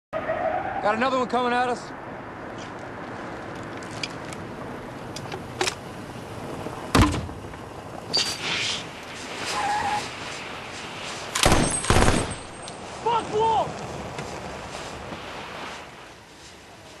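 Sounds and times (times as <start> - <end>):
loud thump: 6.9 - 7.4.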